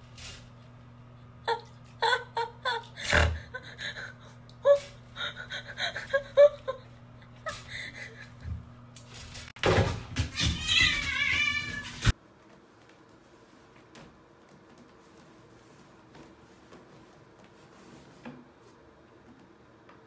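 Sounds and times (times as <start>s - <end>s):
cat meowing: 10.4s - 12.0s.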